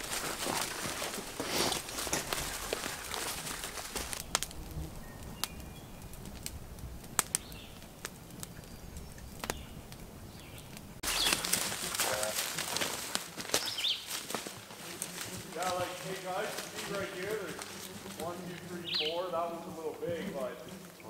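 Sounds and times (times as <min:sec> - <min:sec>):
footsteps in leaf litter: 0:00.0 - 0:04.6, 0:11.0 - 0:20.1
loud rustling: 0:00.0 - 0:04.8, 0:11.0 - 0:20.0
faint birds calling: 0:00.0 - 0:21.0
fire popping: 0:00.0 - 0:21.0
wood fire crackling: 0:00.0 - 0:21.0.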